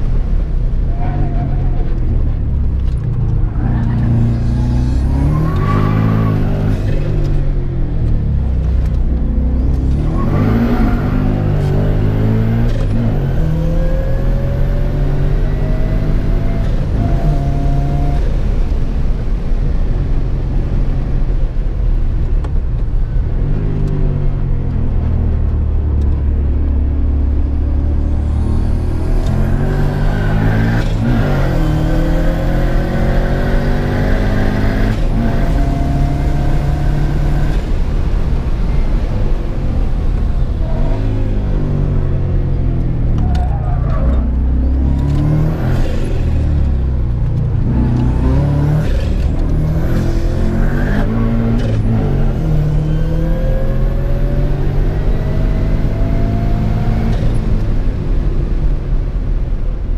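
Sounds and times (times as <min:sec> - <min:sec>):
race car engine revving: 0:27.4 - 0:57.7.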